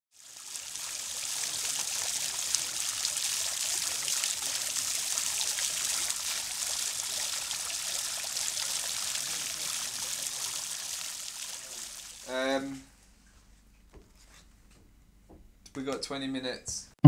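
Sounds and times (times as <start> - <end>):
fountain water splashing and trickling: 0.1 - 12.4.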